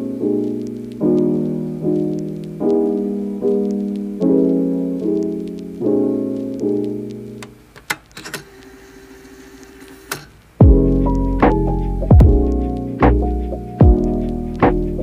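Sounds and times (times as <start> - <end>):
piano chords: 0.0 - 7.7, 10.6 - 15.0
clicks: 6.4 - 8.8, 9.6 - 10.4.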